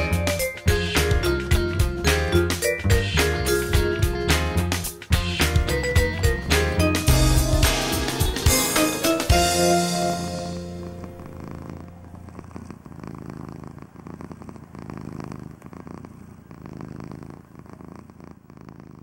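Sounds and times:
music track: 0:00.0 - 0:12.2
cat purring: 0:00.0 - 0:19.0.

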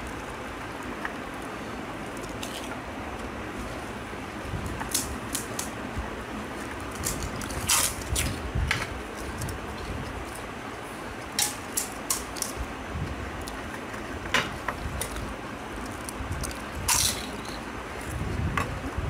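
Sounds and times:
steady background noise: 0:00.0 - 0:19.0
crisp shells cracking: 0:02.0 - 0:02.8, 0:06.7 - 0:08.4, 0:14.9 - 0:17.7.

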